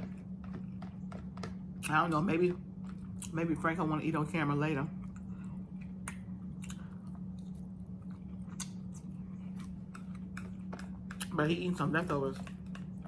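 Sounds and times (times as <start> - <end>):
low hum: 0.0 - 13.0
person chewing: 5.0 - 11.4.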